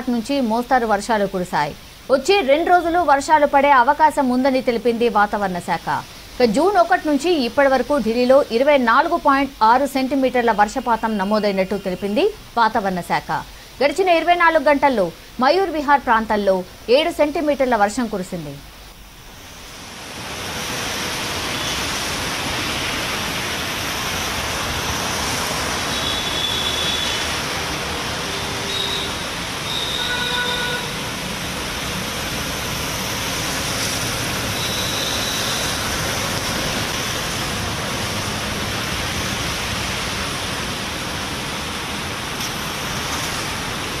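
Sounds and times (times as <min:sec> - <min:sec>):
heavy rain hissing: 0:00.0 - 0:44.0
tyres on wet road: 0:19.5 - 0:44.0.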